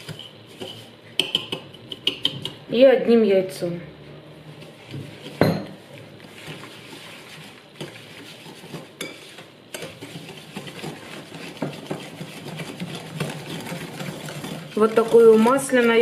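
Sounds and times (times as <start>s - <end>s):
whisk beating in ceramic bowl: 5.0s - 16.0s.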